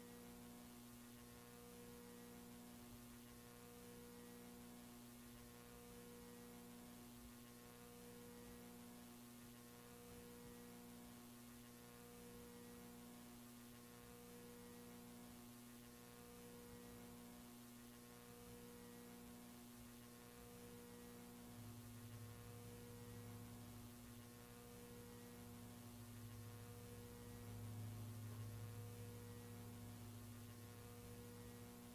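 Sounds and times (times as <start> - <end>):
faint pulsing mains hum: 0.0 - 31.9.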